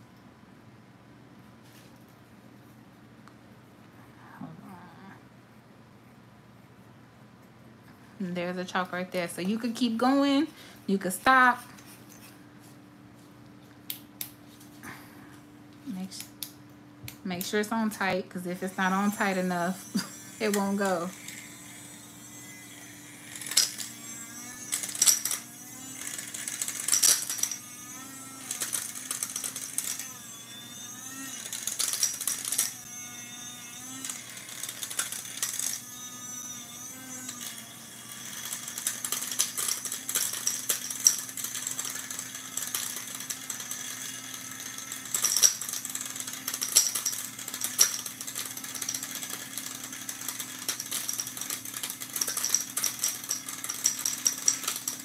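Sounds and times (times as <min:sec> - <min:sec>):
grinder motor humming: 0:17.4 - 0:55.0
chalk pieces rattling: 0:38.8 - 0:43.8, 0:45.0 - 0:55.0.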